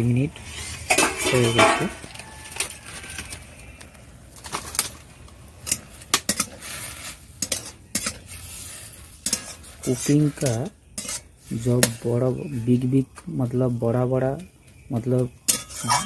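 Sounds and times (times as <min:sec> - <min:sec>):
spatula scraping metal pan: 0:00.4 - 0:02.6, 0:05.6 - 0:12.9, 0:15.5 - 0:16.0
greens sizzling in boiling water: 0:04.4 - 0:12.2.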